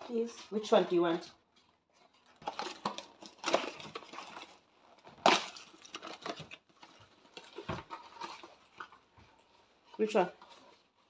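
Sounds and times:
paper rustling and crinkling: 0.2s - 11.0s
cardboard being torn: 2.3s - 8.6s.

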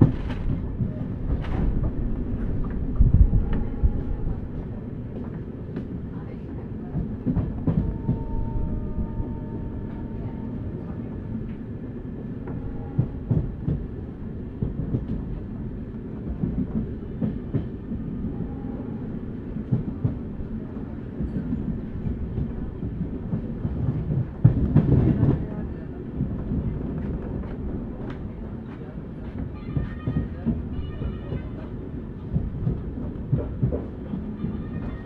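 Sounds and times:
train coach rumble: 0.0s - 35.0s.

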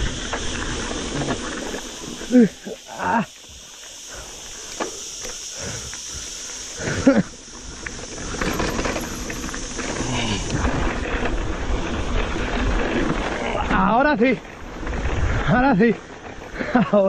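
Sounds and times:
bike tyres rattling over ground: 0.0s - 17.0s
loud groan-like sound: 9.9s - 10.9s
wind on microphone: 14.7s - 16.6s.

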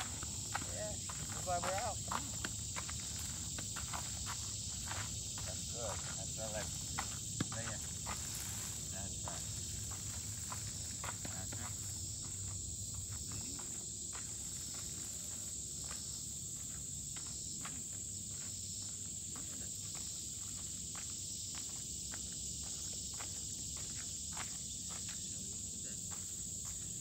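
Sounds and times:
footsteps on gravel: 0.0s - 18.7s
insects buzzing in trees: 0.0s - 27.0s.

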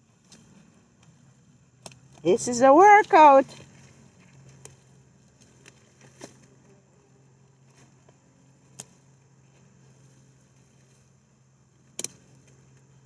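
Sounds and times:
light ticks and snaps: 8.7s - 9.0s.

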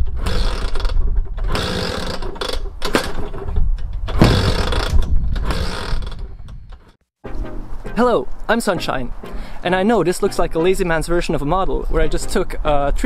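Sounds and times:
scooter kick-start clattering: 0.0s - 6.6s.

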